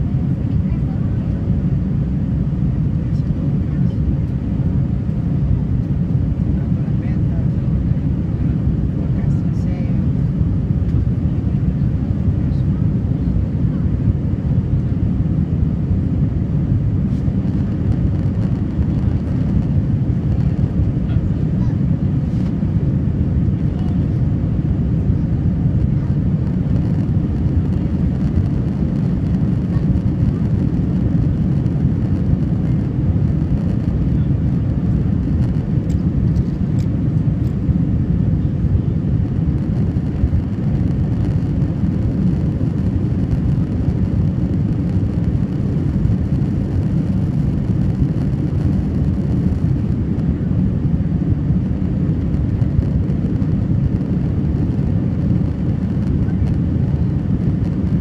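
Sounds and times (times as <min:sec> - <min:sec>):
jet engine rumble in cabin: 0:00.0 - 0:58.0
rushing air: 0:14.0 - 0:58.0.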